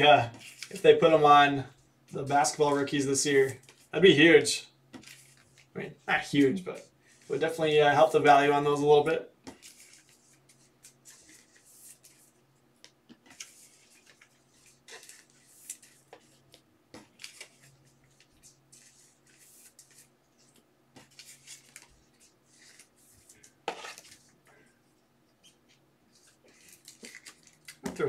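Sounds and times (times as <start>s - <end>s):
trading cards rustling on table: 0.2s - 1.0s, 4.9s - 5.7s, 9.4s - 24.8s, 25.4s - 28.0s.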